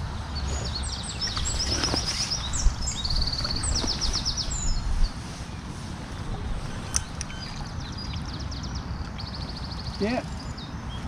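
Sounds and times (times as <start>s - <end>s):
wind rumble on microphone: 0.0s - 11.0s
songbird trilling: 0.4s - 5.6s, 6.6s - 11.0s.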